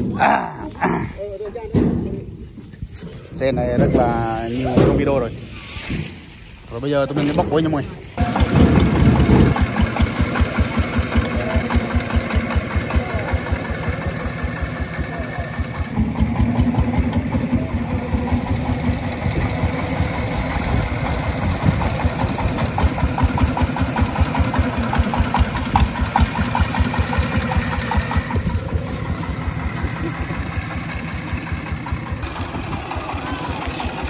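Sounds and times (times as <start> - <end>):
diesel engine thumping: 8.2 - 34.0.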